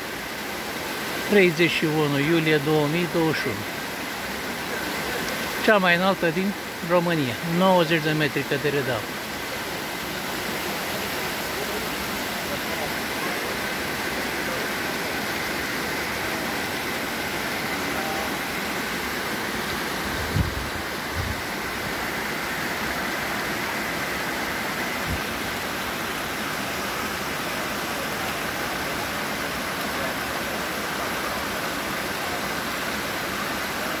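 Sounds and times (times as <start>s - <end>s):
waterfall rushing: 0.0s - 34.0s.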